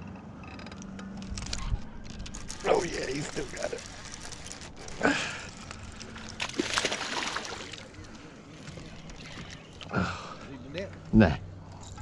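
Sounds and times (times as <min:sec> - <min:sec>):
fish splashing at water surface: 0:06.2 - 0:08.0.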